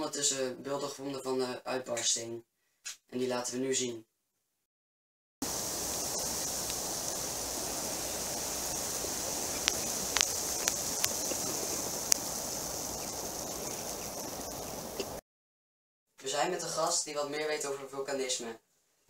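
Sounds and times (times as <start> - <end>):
outdoor hiss and rustle: 5.4 - 15.2.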